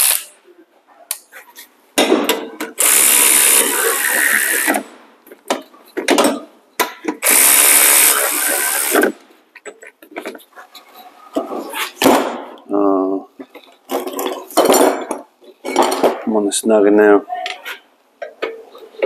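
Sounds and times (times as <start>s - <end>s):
power ratchet running: 0.0s - 0.3s, 2.8s - 4.8s, 7.2s - 9.2s.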